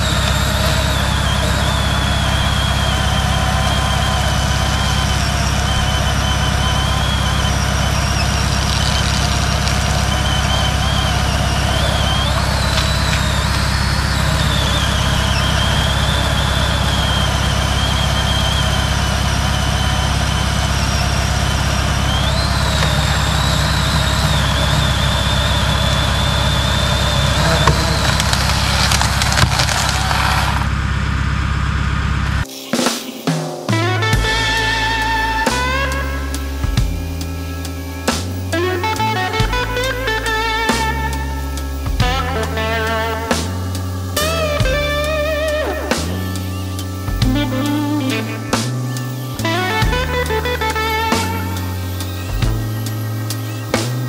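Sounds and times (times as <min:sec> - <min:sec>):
boom lift engine running: 0:00.0 - 0:32.4, 0:33.7 - 0:54.0
high wavering whine: 0:00.0 - 0:54.0
tree limb cracking and falling: 0:08.5 - 0:10.6, 0:27.4 - 0:30.8.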